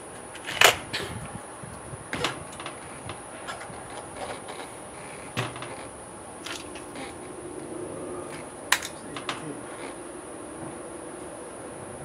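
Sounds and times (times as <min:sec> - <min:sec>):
air rifle handling clicks: 0:08.7 - 0:09.3.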